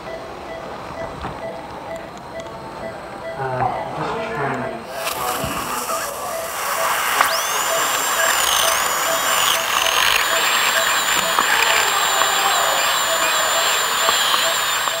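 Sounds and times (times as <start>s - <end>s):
short beeps: 0.0s - 15.0s
dental drill whining: 4.9s - 15.0s.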